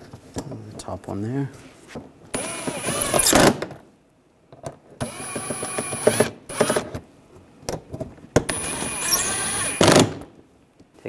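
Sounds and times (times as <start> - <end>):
impact driver running: 2.4 - 3.6, 8.5 - 10.2.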